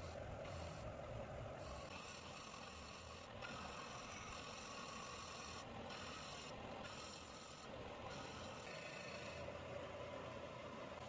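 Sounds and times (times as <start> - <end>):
disc sander sanding wood: 1.6 - 9.5.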